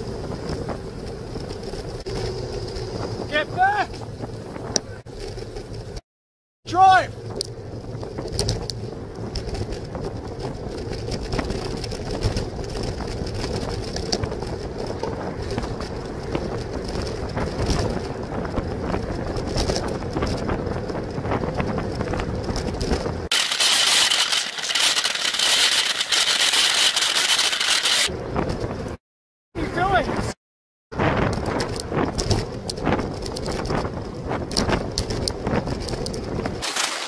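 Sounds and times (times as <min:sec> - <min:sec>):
wind rushing: 0:00.0 - 0:05.0
bicycle road noise: 0:00.0 - 0:06.0, 0:06.7 - 0:29.0, 0:29.6 - 0:37.0.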